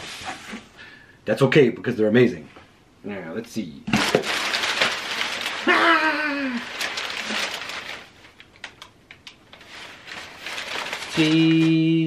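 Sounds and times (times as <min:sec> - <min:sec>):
packing paper crinkling: 0:03.9 - 0:12.0.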